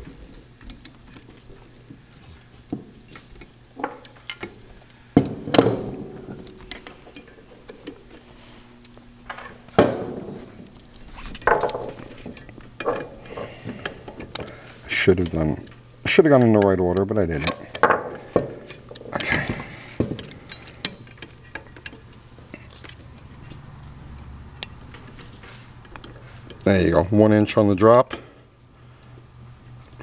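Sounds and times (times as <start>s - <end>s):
metal parts clinking: 10.6s - 23.3s.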